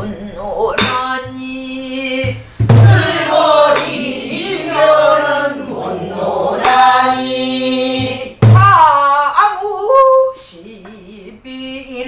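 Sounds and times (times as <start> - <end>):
women singing folk song: 0.0 - 12.0
barrel drum strikes: 0.8 - 1.0, 2.2 - 4.0, 7.9 - 8.8.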